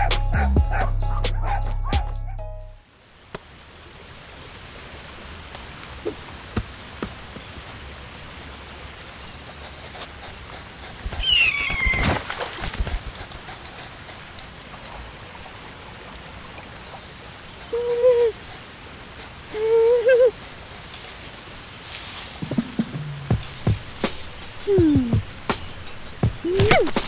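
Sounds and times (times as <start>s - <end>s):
pond fountain hissing: 2.8s - 27.0s
splash: 11.4s - 13.2s
high falling yelp: 17.4s - 27.0s.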